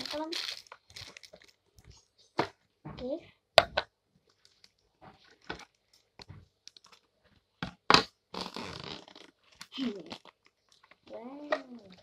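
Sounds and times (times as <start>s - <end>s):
plastic crinkling: 0.0s - 2.0s, 8.6s - 12.0s.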